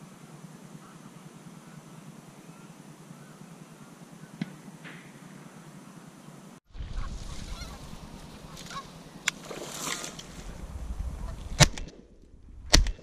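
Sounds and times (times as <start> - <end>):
geese honking: 6.9 - 10.2.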